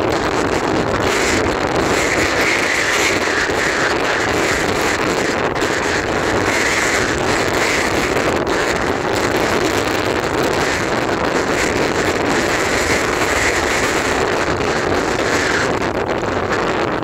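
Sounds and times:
wind blowing on microphone: 0.0 - 17.0.

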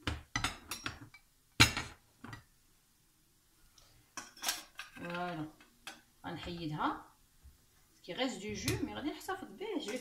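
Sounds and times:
metal utensils clinking in bowl: 9.8 - 10.0.

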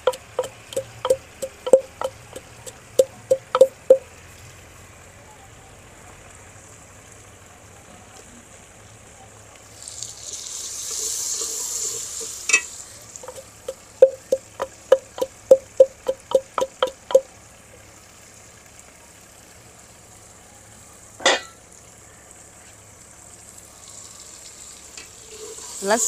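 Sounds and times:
wooden pestle pounding in mortar: 0.0 - 4.0, 13.2 - 17.2.

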